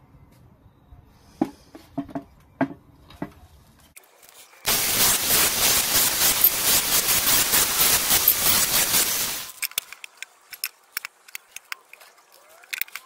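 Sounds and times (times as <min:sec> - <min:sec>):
loud steady hiss: 0:04.7 - 0:09.6.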